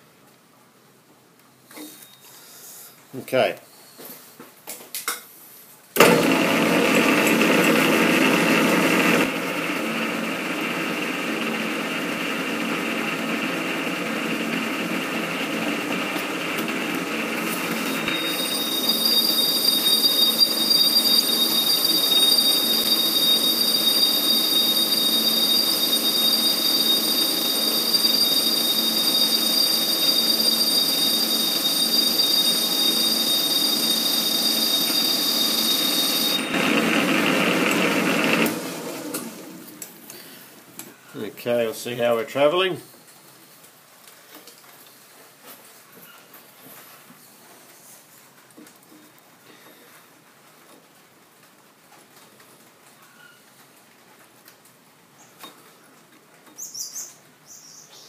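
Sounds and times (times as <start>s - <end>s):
metal lathe running: 6.0s - 39.9s
high-pitched cutting whine: 13.9s - 39.9s.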